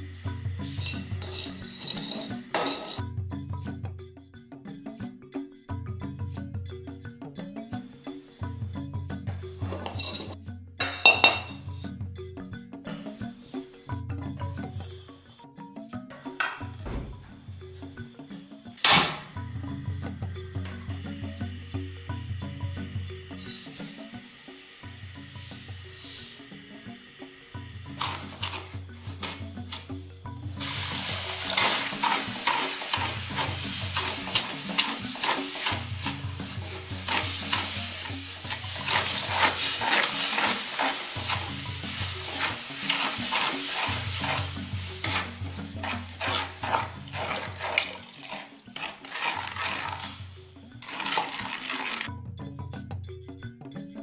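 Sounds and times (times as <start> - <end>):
wooden spoon scraping metal pan: 0.6 - 3.0, 9.6 - 11.6, 28.0 - 29.9, 30.6 - 52.1.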